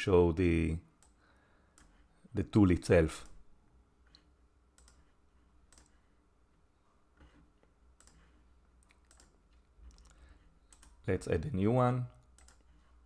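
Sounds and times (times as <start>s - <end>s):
low room hum: 0.0s - 13.0s
computer mouse clicks: 4.1s - 6.0s, 7.2s - 11.0s, 12.2s - 12.9s.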